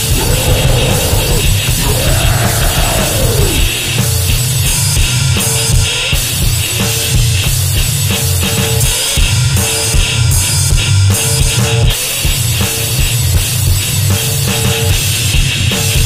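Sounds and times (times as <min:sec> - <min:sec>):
harsh noise: 0:00.0 - 0:07.1
distorted drums and guitar: 0:00.0 - 0:16.0.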